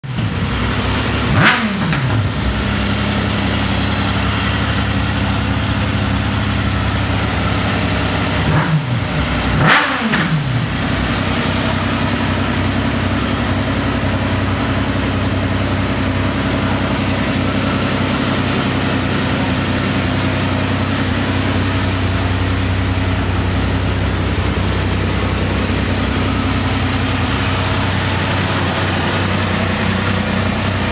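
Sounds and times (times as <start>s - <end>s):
engine revving: 0.0s - 14.8s
motorcycle engine idling: 0.0s - 30.9s.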